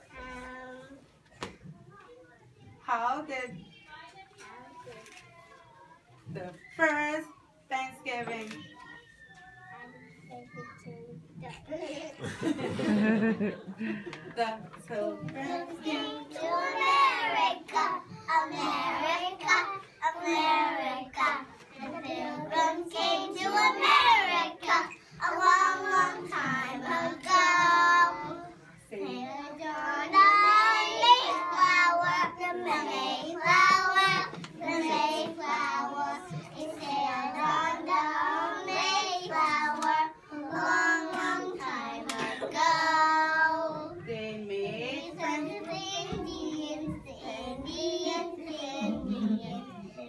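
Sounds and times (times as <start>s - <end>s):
children singing together: 15.2s - 44.1s, 45.1s - 50.0s.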